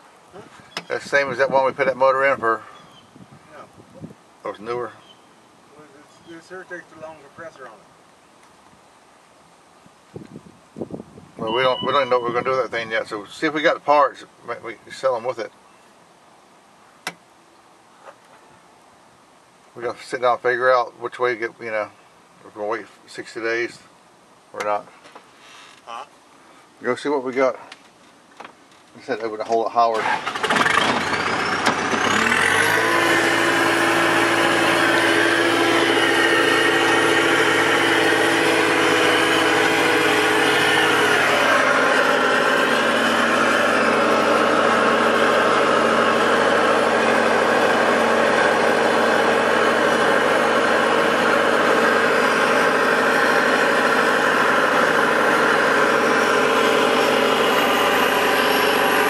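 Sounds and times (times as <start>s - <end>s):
vehicle engine running: 30.0s - 59.0s.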